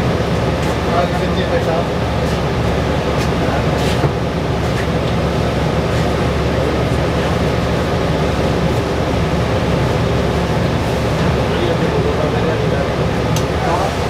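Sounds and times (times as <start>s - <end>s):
bus drivetrain rumble: 0.0s - 14.0s.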